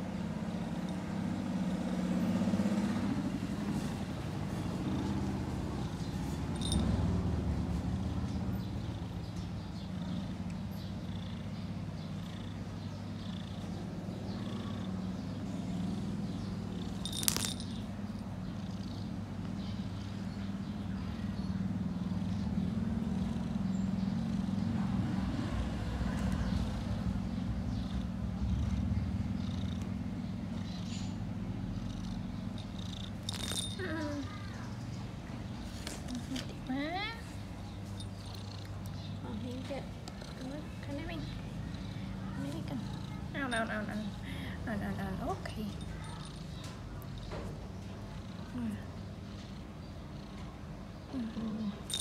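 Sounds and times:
kitten purring: 0.1s - 52.0s.

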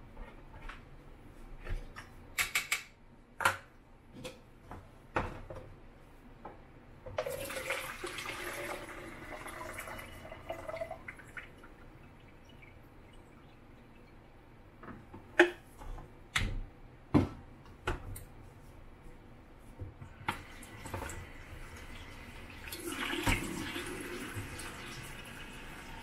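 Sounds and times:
liquid pouring into plastic jug: 7.2s - 14.0s, 22.4s - 25.7s.

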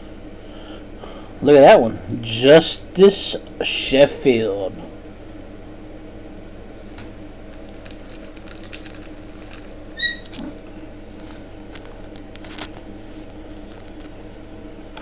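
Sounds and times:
low room hum: 0.0s - 15.0s
cards and wrappers rustling: 7.5s - 14.2s.

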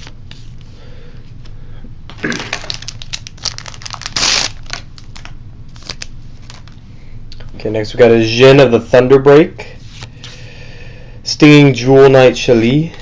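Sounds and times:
foil pack crinkling and tearing: 2.2s - 6.8s.

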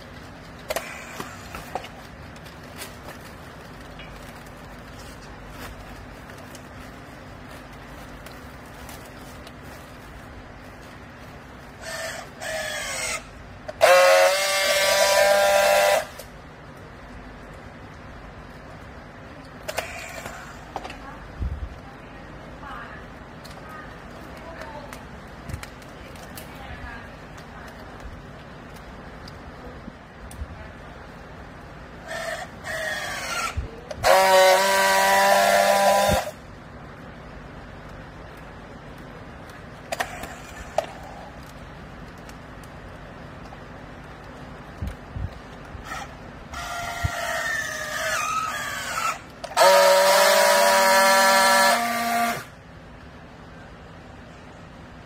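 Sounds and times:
strapping tool motor whine: 11.8s - 16.3s, 32.0s - 36.4s, 45.8s - 52.5s.

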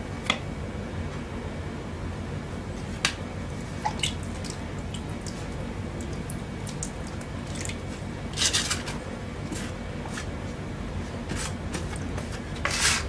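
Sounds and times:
putty blade scraping powder on stone: 12.6s - 13.0s.

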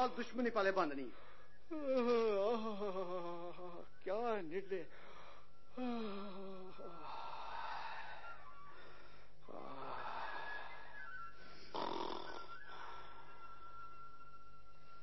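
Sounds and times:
person snoring: 5.7s - 13.0s.

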